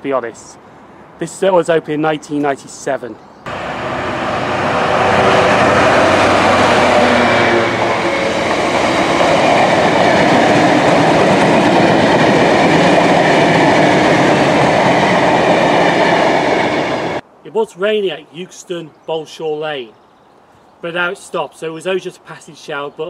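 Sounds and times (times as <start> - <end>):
diesel locomotive engine: 3.5 - 17.2
train wheels on rails: 3.5 - 17.2.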